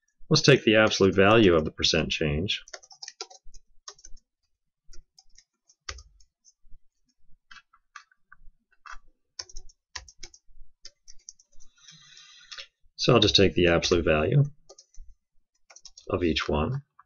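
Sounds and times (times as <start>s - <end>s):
computer keyboard typing: 2.6s - 4.3s, 4.9s - 6.6s, 8.8s - 11.7s, 14.6s - 16.1s.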